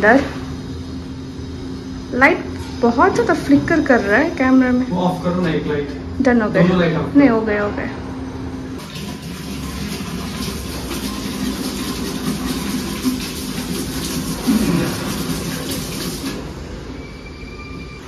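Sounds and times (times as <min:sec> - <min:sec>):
water rushing through plumbing: 0:08.8 - 0:17.0.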